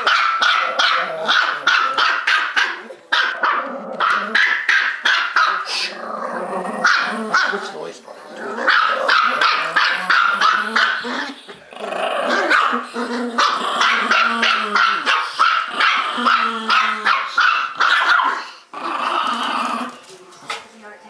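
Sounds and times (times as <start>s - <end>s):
dogs growling: 0.0s - 4.7s, 5.5s - 20.6s
small dogs barking: 0.0s - 5.9s, 6.8s - 7.8s, 8.6s - 11.4s, 12.2s - 18.6s.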